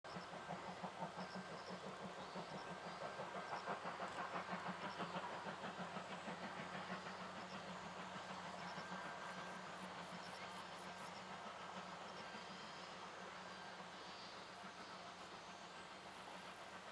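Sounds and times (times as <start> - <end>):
steam locomotive exhaust beats: 0.1 - 16.9.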